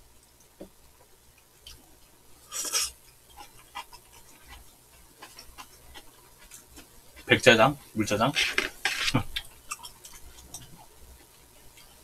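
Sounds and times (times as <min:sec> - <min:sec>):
person slurping noodles: 0:02.5 - 0:03.0.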